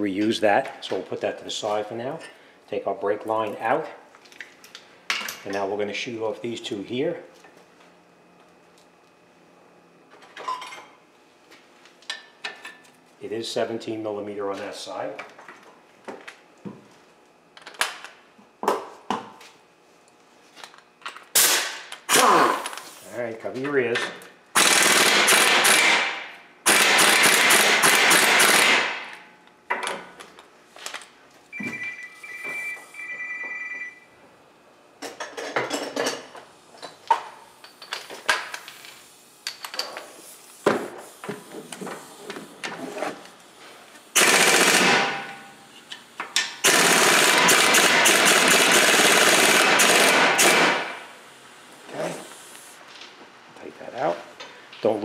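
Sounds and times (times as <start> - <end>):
air impact wrench hammering: 24.6 - 29.2, 44.1 - 51.2.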